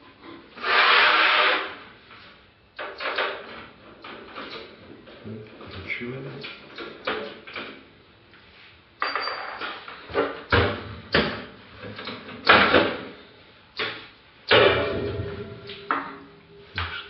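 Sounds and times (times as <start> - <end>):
metal computer case clanking: 14.5 - 16.7.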